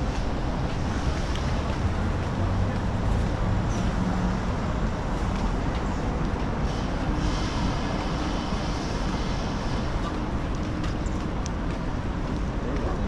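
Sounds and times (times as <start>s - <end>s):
faint voices of passers-by: 0.0s - 13.0s
road traffic rumble: 0.0s - 13.0s.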